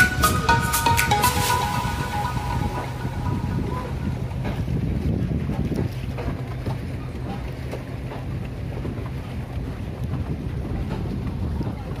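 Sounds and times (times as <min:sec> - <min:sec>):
water splashing along a hull: 0:00.0 - 0:12.0
wind buffeting microphone: 0:01.5 - 0:12.0.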